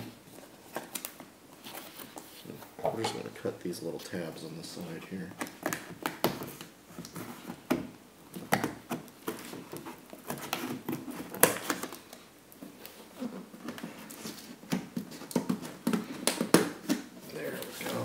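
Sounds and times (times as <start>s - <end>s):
cardboard rustling and creaking: 4.0s - 18.0s.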